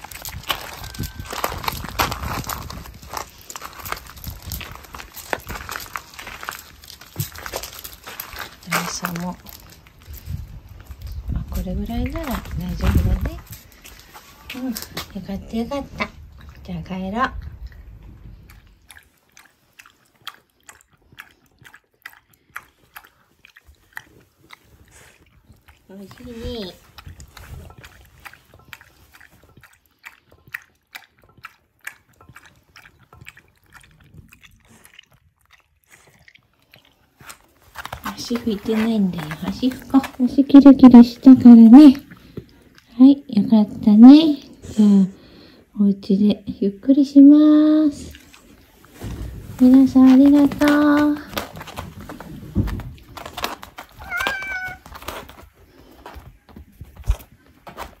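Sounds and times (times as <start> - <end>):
dog lapping water: 15.5 - 42.9, 47.7 - 49.0
cat meowing: 54.0 - 55.0.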